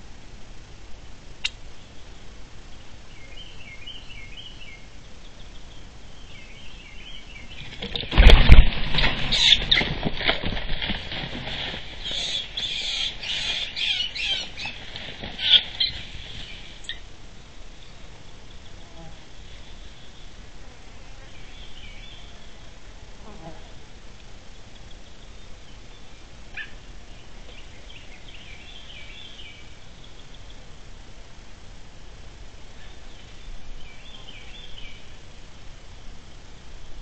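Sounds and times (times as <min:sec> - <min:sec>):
crash in brush pile: 0:07.8 - 0:12.8
scuffling in brush: 0:08.1 - 0:16.9
squirrel squealing: 0:12.0 - 0:14.8, 0:15.4 - 0:16.0.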